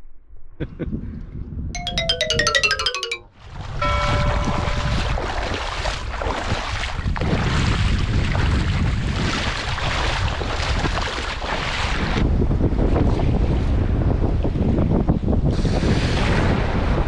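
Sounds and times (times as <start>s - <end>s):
wind buffeting microphone: 7.0s - 11.0s, 12.1s - 16.7s.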